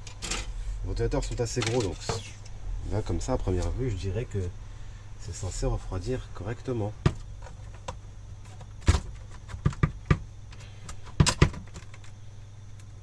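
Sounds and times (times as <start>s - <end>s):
plastic and metal clicks and knocks: 7.0s - 12.1s.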